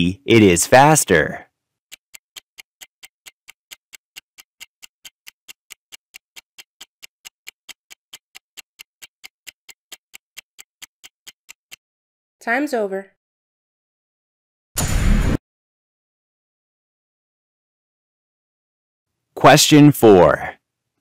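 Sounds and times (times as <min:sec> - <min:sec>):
clock ticking: 0:01.9 - 0:11.8.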